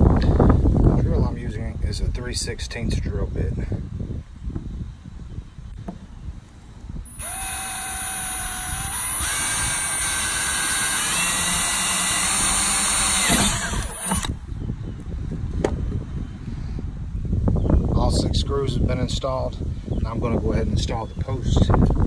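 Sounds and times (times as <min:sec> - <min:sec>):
cordless drill driving screw: 0:07.1 - 0:14.4.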